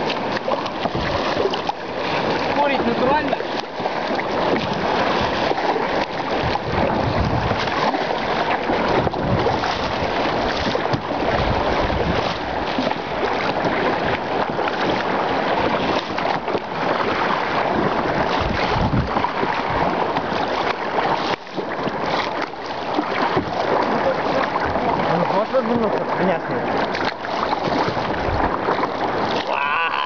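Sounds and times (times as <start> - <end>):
wind buffeting microphone: 0.0 - 20.7, 26.8 - 29.5
sea water sloshing and splashing: 0.0 - 30.0.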